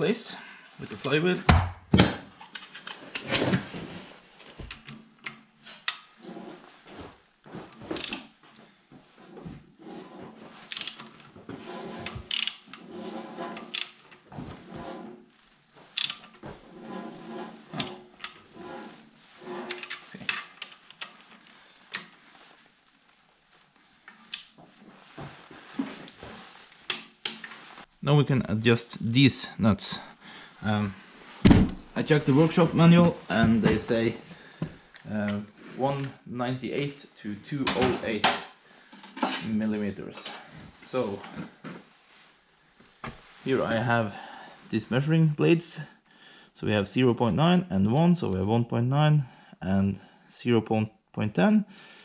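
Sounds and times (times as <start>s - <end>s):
socket wrench turning: 10.7s - 11.1s, 12.3s - 12.7s, 16.0s - 16.3s.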